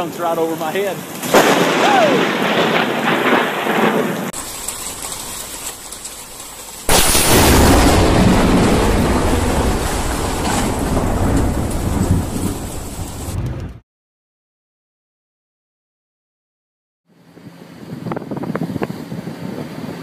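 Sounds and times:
heavy rain: 0:00.0 - 0:13.8
loud storm wind: 0:01.0 - 0:04.4, 0:06.9 - 0:13.8, 0:17.4 - 0:20.0
thunder crashing: 0:01.2 - 0:05.5, 0:06.9 - 0:13.8.

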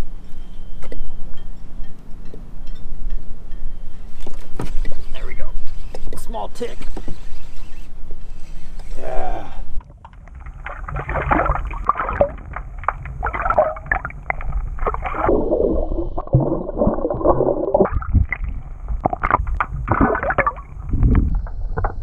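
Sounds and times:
bubbly clicks: 0:09.8 - 0:22.0
muffled splashing water: 0:09.8 - 0:22.0.

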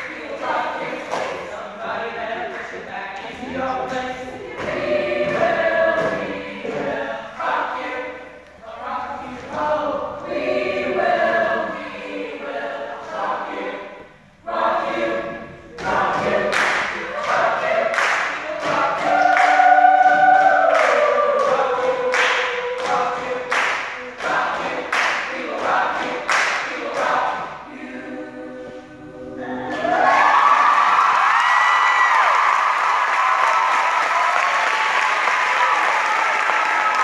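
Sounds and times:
vocal group singing in harmony: 0:00.0 - 0:32.8.

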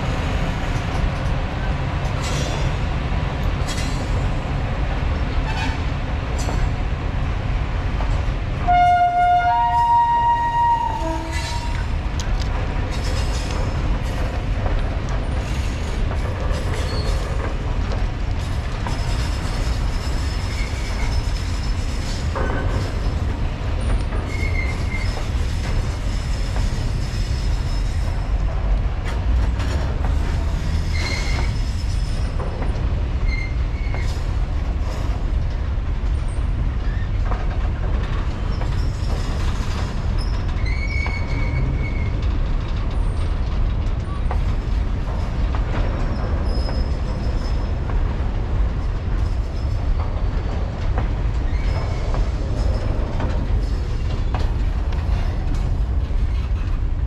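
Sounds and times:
train wheels rumbling on rails: 0:00.0 - 0:57.0
high wheel squeals: 0:30.6 - 0:32.3.

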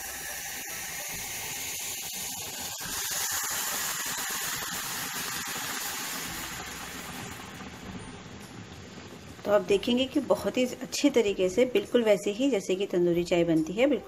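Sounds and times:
tea sizzling and hissing: 0:00.0 - 0:10.8.

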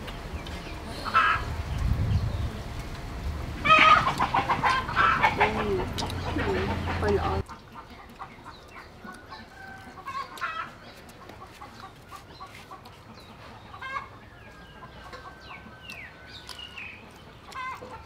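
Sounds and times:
chickens clucking: 0:00.0 - 0:18.0
small birds chirping: 0:00.0 - 0:18.0
soft chewing clicks: 0:02.7 - 0:03.4, 0:04.0 - 0:13.3, 0:15.0 - 0:18.0.

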